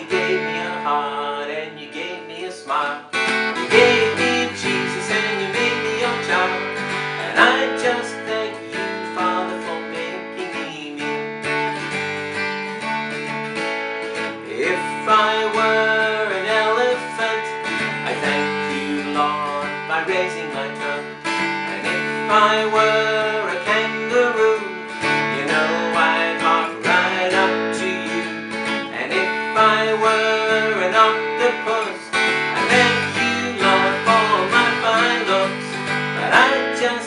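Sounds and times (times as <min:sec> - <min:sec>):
man singing: 0:00.0 - 0:11.9, 0:14.2 - 0:37.0
acoustic guitar strumming: 0:00.0 - 0:37.0.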